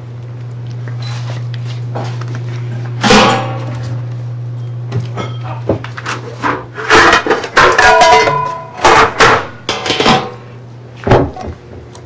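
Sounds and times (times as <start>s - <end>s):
metal kitchenware banging: 3.0s - 3.7s, 6.8s - 10.4s.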